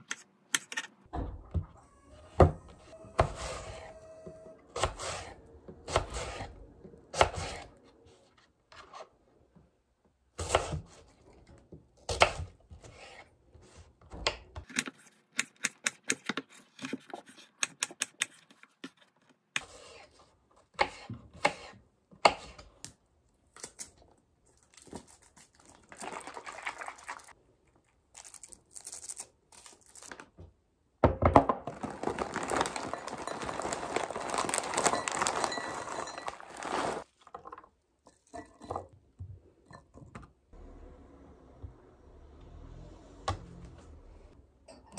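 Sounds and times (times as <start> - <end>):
granola pouring into glass: 25.7 - 27.3, 31.7 - 37.1.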